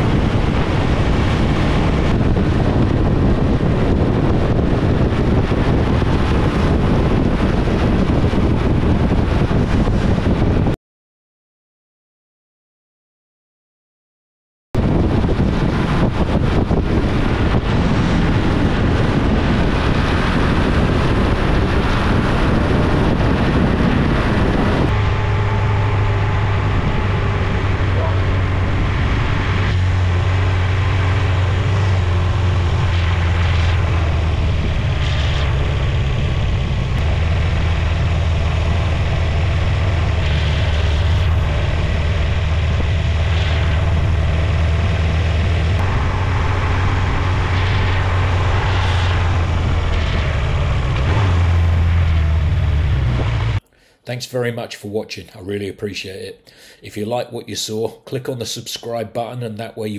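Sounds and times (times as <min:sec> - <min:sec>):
wind noise on microphone: 0:00.0 - 0:10.8, 0:14.8 - 0:53.6
motorcycle engine running: 0:16.0 - 0:53.6.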